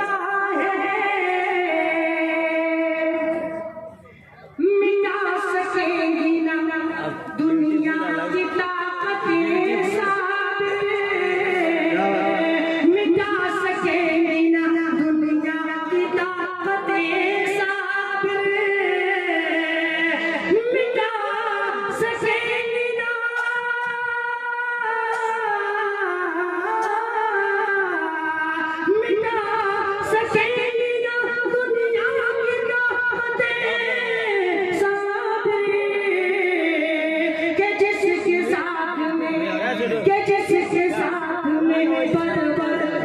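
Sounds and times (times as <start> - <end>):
man singing into a microphone: 11.3 - 12.8.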